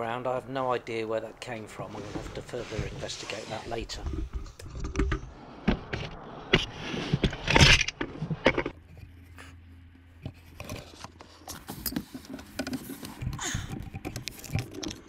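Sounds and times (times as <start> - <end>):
metal scrape: 1.7 - 9.5.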